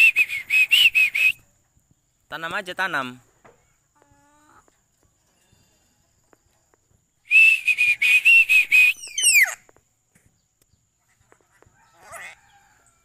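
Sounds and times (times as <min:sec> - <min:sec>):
parrot screeching: 0:09.0 - 0:09.6.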